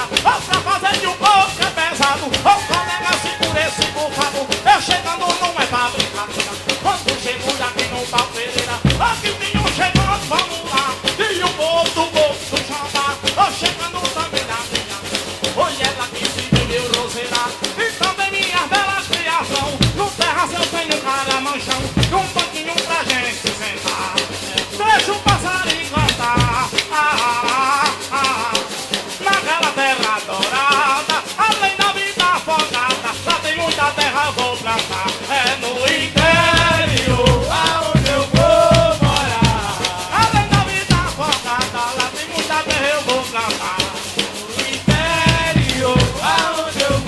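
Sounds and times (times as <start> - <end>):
deep drum strokes: 0.0 - 17.8, 19.5 - 20.4, 33.5 - 47.0
group singing: 0.0 - 47.0
pandeiros and shaker rhythm: 0.0 - 47.0.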